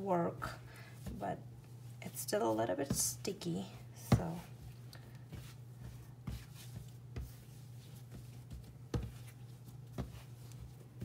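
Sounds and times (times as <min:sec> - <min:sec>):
faint steady hum: 0:00.0 - 0:11.0
dough thumping on counter: 0:06.2 - 0:11.0.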